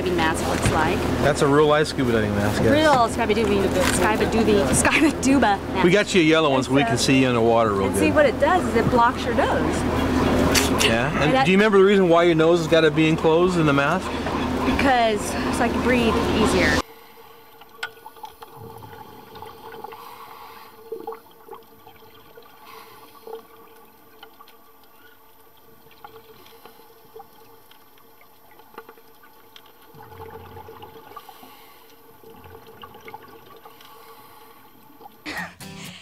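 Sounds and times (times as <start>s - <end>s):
faint steady hum: 0.0s - 35.3s
bubbles rising underwater: 17.6s - 35.2s.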